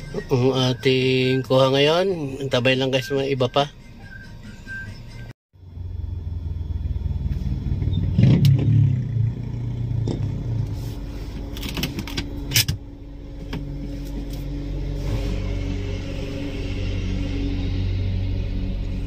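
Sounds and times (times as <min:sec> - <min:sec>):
low steady rumble: 0:05.6 - 0:19.0.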